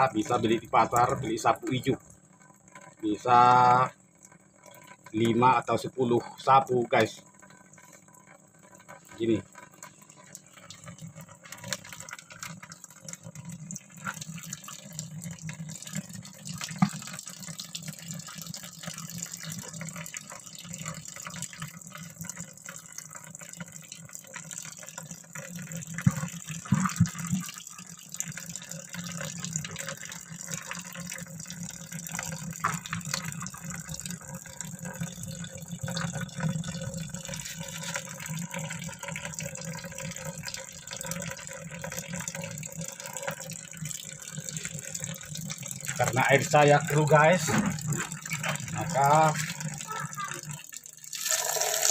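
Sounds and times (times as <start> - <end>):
water dripping: 0.0 - 51.9
water sloshing in a plastic bucket: 25.4 - 27.7, 28.4 - 51.2.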